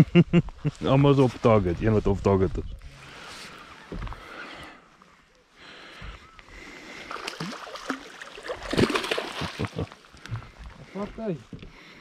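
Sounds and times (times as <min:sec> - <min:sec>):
fish thrashing and splashing: 0:07.0 - 0:10.2.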